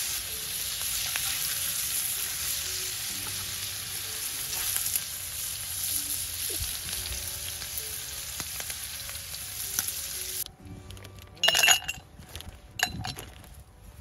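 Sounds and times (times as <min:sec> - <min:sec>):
food sizzling on a grill: 0:00.0 - 0:10.5
ice clinking into a glass: 0:11.4 - 0:12.0.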